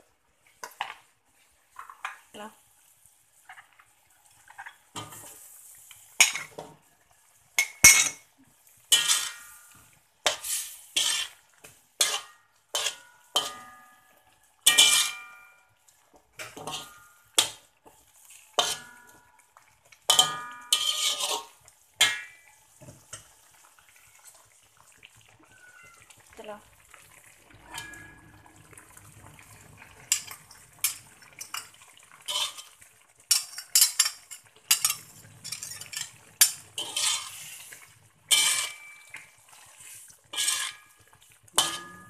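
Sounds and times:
metal spatula scraping wok: 0:08.9 - 0:13.9, 0:14.6 - 0:15.6, 0:16.4 - 0:17.6, 0:18.4 - 0:19.2, 0:20.1 - 0:22.4, 0:27.6 - 0:28.5, 0:30.0 - 0:42.0.

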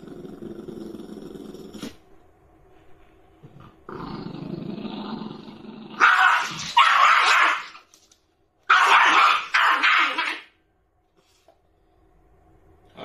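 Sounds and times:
dog growling: 0:00.0 - 0:02.0, 0:03.6 - 0:06.8
dog growling barks: 0:03.9 - 0:07.8, 0:08.7 - 0:10.5.

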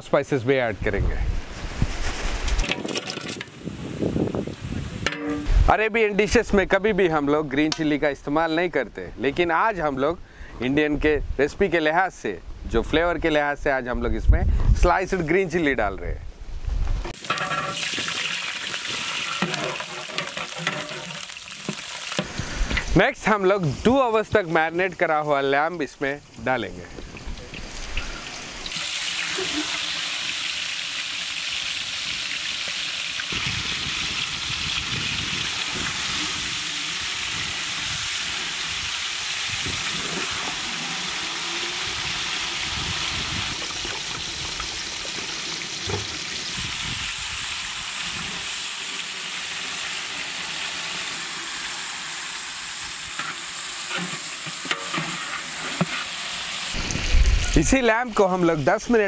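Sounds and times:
hot oil sizzling: 0:17.1 - 0:24.7, 0:26.2 - 0:58.3.

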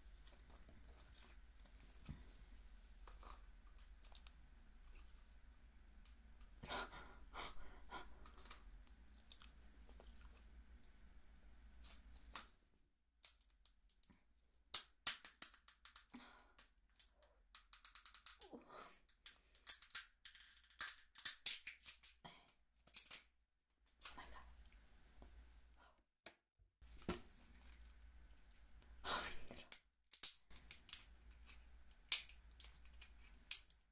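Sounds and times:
scissors cracking crab shell: 0:30.1 - 0:33.8.

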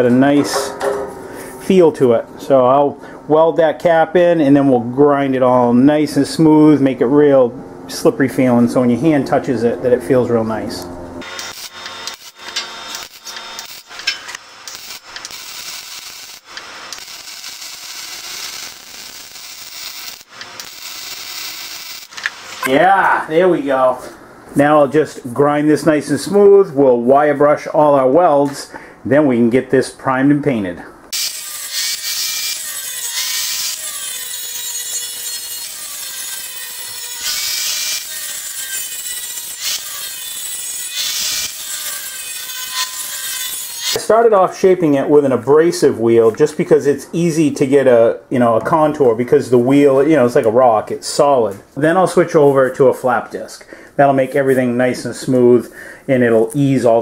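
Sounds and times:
angle grinder grinding steel: 0:11.2 - 0:22.7, 0:31.1 - 0:44.0
welding arc crackling and sizzling: 0:11.2 - 0:22.7, 0:31.1 - 0:44.0.

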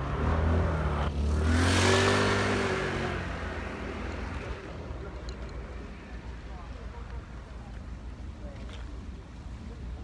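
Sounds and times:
engine revving: 0:00.0 - 0:04.7.

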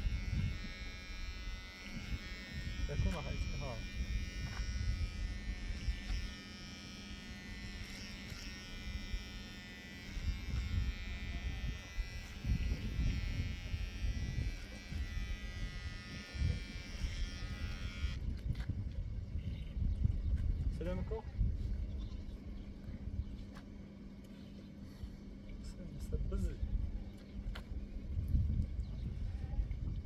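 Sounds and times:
small electric motor buzzing: 0:00.0 - 0:18.2.

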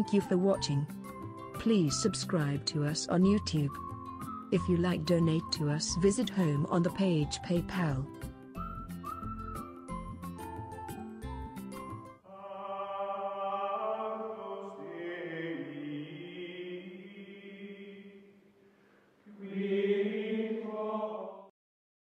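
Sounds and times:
choir-like chanting music: 0:12.3 - 0:18.3, 0:19.3 - 0:21.5.

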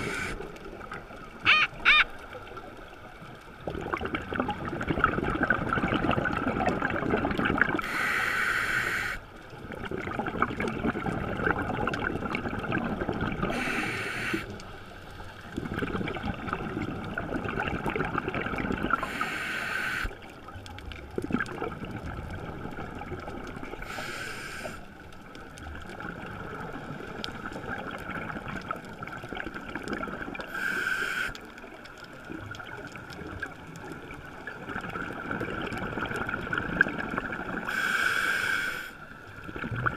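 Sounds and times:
regulator air hiss: 0:00.0 - 0:00.4, 0:07.8 - 0:09.2, 0:13.5 - 0:14.6, 0:19.0 - 0:20.2, 0:23.8 - 0:24.8, 0:30.5 - 0:31.4, 0:37.7 - 0:39.0
exhaled bubbles rumbling underwater: 0:00.0 - 0:08.2, 0:08.8 - 0:30.6, 0:31.4 - 0:37.8, 0:39.0 - 0:39.9.

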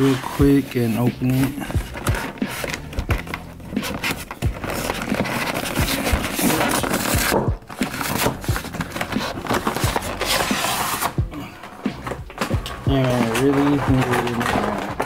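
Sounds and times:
cardboard and plastic rustling: 0:00.0 - 0:15.0.

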